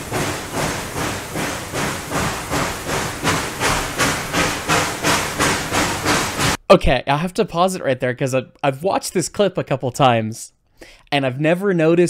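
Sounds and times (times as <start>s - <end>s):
steady hiss of steam: 0.0s - 6.6s
steam locomotive exhaust beats: 0.0s - 6.6s.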